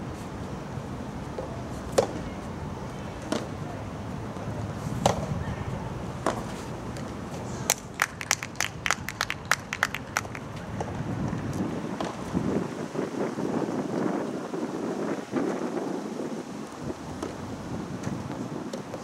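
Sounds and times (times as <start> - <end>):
tennis ball struck by rackets: 1.4 - 2.2, 3.2 - 3.6, 4.9 - 5.3, 6.2 - 7.1
sharp claps: 7.7 - 10.6.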